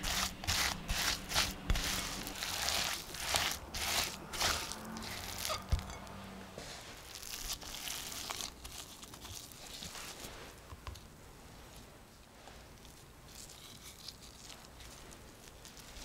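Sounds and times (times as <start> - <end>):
spatula working dough in bowl: 0.0 - 8.7
gloves crinkling and rustling: 0.0 - 16.0.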